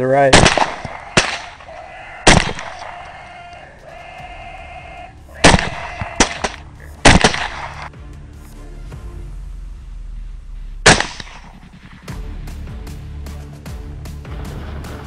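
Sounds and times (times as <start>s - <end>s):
rifle shots with echo: 0.3s - 3.2s, 5.4s - 7.9s, 10.8s - 12.2s.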